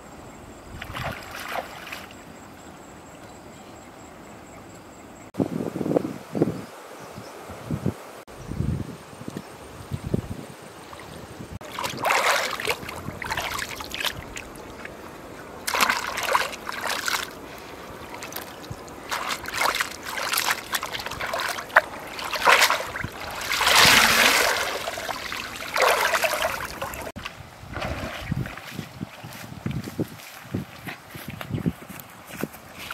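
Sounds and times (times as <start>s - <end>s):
river water splashing: 0.7s - 2.9s, 10.8s - 29.2s.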